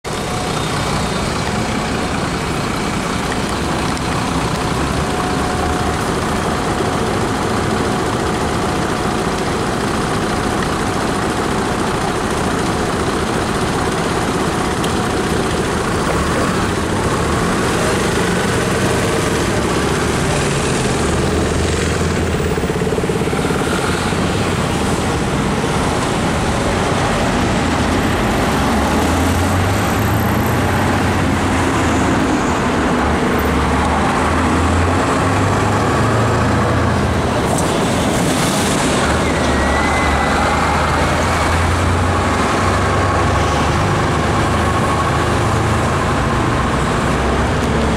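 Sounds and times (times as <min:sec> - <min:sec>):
truck diesel engine rumble: 0:00.1 - 0:47.9
cars passing: 0:11.3 - 0:47.9.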